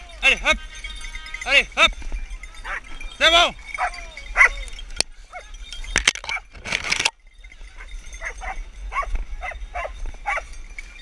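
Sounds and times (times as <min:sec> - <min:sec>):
dogs barking and yelping: 0:02.2 - 0:11.0.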